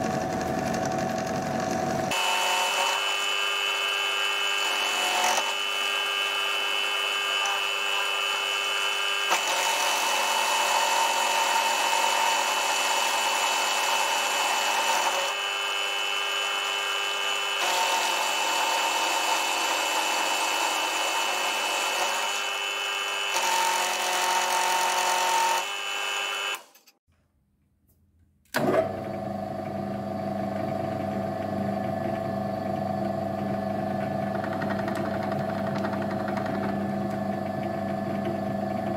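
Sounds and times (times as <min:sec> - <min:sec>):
grinding disc humming: 0:00.0 - 0:02.2, 0:28.6 - 0:38.9
milling machine cutting metal: 0:00.0 - 0:27.0.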